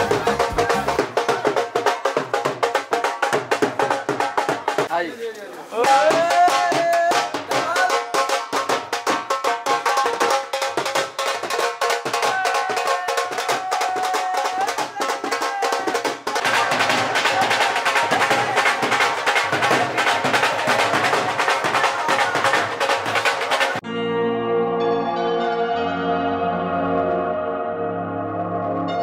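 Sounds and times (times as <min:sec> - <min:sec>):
rapid drumming: 0:00.0 - 0:05.0, 0:05.8 - 0:23.8.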